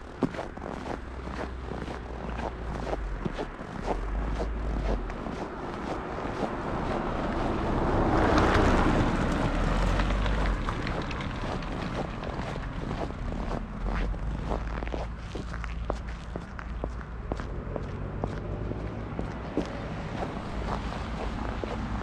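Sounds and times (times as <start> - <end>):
footsteps on snow: 0.0 - 22.0
car driving past: 5.6 - 14.9.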